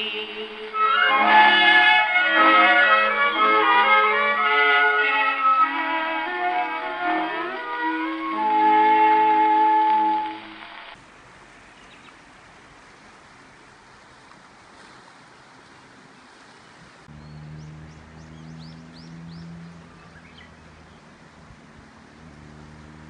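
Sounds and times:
steady hiss: 0:07.5 - 0:15.8
bird chirping: 0:11.7 - 0:12.2, 0:17.1 - 0:21.4.

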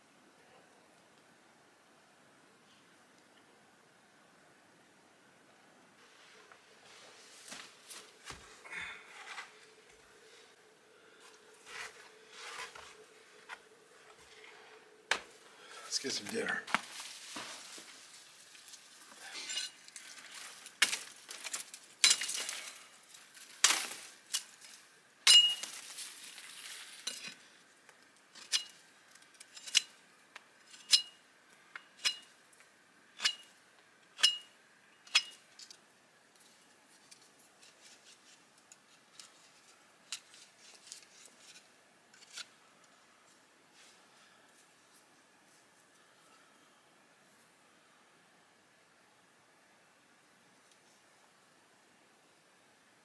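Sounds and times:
dry branches rustling and cracking: 0:11.1 - 0:33.5, 0:35.1 - 0:43.4.

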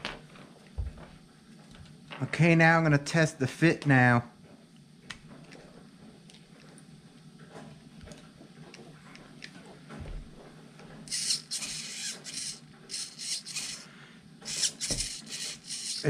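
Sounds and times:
servo whirring: 0:11.1 - 0:16.0.

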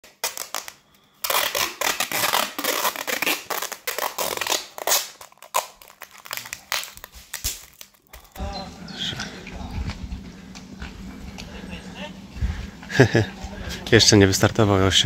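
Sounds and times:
plastic sheeting rustling: 0:00.0 - 0:08.1
adhesive tape ripping: 0:00.0 - 0:08.4.

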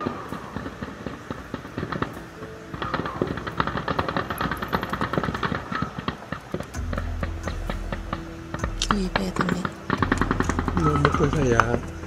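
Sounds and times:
distant automatic gunfire: 0:00.0 - 0:07.0
background hiss: 0:00.0 - 0:12.0.

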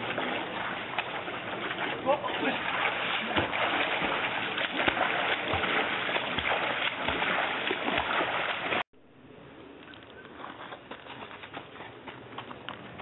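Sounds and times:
dull thump of swim strokes: 0:00.0 - 0:08.8
rushing river water: 0:00.0 - 0:08.8
swimmer splashing: 0:00.0 - 0:08.9
outdoor background: 0:00.0 - 0:13.0.

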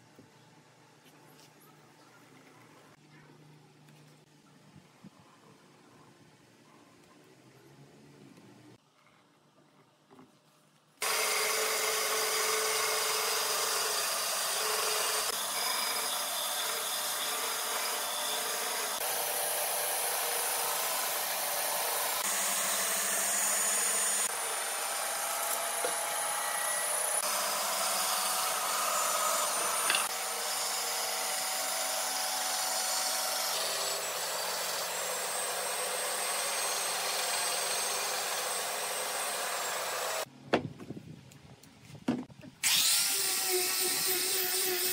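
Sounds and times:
band saw cutting wood: 0:11.0 - 0:40.3, 0:42.6 - 0:44.9.

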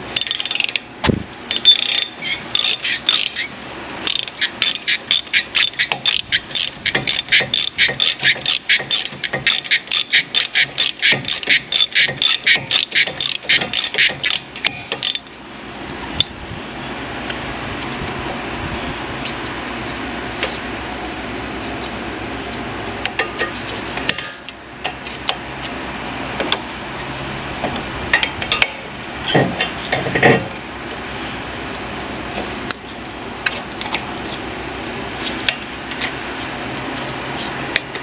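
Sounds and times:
hand ratchet clicking: 0:01.5 - 0:03.5, 0:04.1 - 0:15.3.

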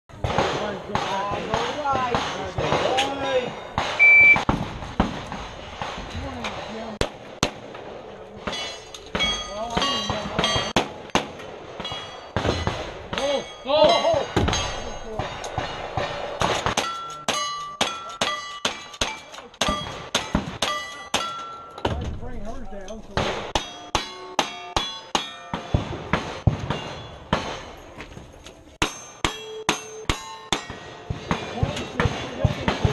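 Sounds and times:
gunshots: 0:00.2 - 0:17.0, 0:23.1 - 0:28.0, 0:30.6 - 0:32.9
steel target ringing: 0:08.5 - 0:10.8, 0:11.8 - 0:18.9, 0:23.6 - 0:25.8, 0:28.8 - 0:31.1.

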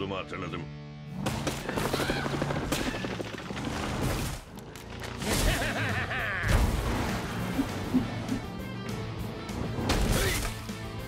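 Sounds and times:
cartoon background music: 0:05.3 - 0:11.0.

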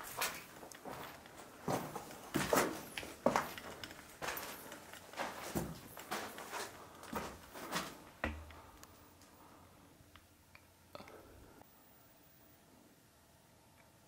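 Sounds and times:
footsteps walking: 0:00.0 - 0:08.8.

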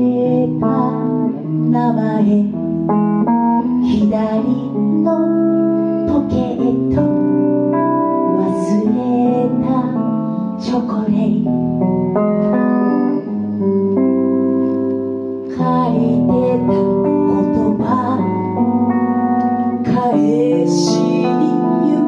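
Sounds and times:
guitar playing slow chords: 0:00.0 - 0:22.0.

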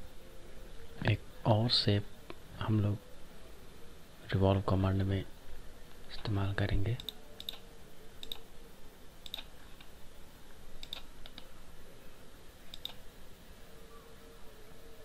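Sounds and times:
computer mouse clicking: 0:07.0 - 0:07.6, 0:08.2 - 0:08.5, 0:09.2 - 0:09.9, 0:10.8 - 0:11.5, 0:12.7 - 0:13.0.

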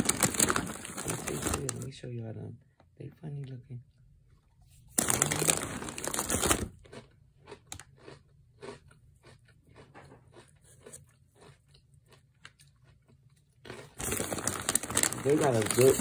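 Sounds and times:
foil snack bag rustling: 0:00.0 - 0:01.9, 0:04.9 - 0:06.8, 0:13.9 - 0:16.0
person chewing crunchy snacks: 0:05.0 - 0:16.0.

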